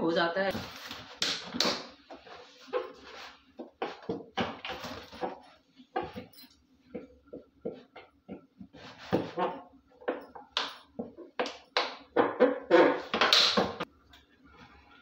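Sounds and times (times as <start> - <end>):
plastic bottle crackling and squeaking: 12.1 - 13.6.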